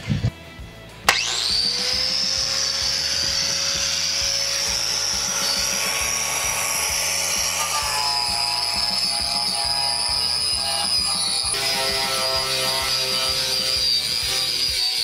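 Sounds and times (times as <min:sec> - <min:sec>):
power wire wheel scrubbing steel: 0:01.1 - 0:15.0.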